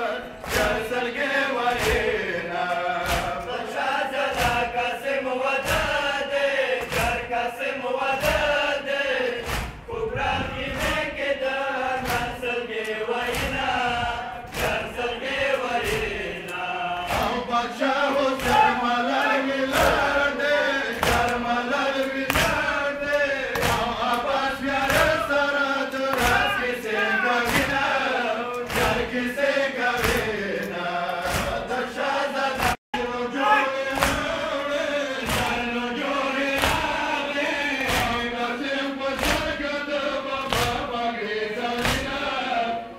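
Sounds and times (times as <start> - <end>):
men chanting: 0.0 - 42.9
hands slapping chests: 0.4 - 0.9, 1.7 - 3.6, 4.3 - 4.8, 5.6 - 6.1, 6.8 - 7.3, 9.4 - 9.9, 12.0 - 13.8, 14.5 - 14.9, 15.5 - 17.4, 18.3 - 20.1, 20.9 - 21.5, 22.2 - 25.2, 25.9 - 26.6, 27.4 - 27.9, 28.5 - 29.1, 30.0 - 31.8, 32.5 - 32.8, 33.9 - 34.4, 35.2 - 35.7, 36.4 - 38.3, 39.1 - 39.6, 40.4 - 40.9, 41.8 - 42.2.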